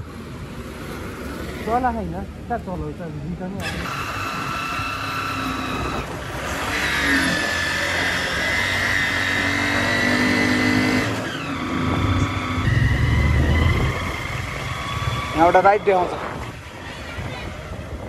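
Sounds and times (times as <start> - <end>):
vehicle engine whine: 3.6 - 18.0
heavy low rumble: 11.8 - 15.6.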